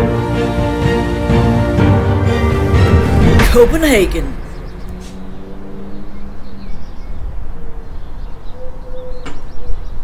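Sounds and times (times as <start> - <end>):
small birds chirping: 4.0 - 10.0.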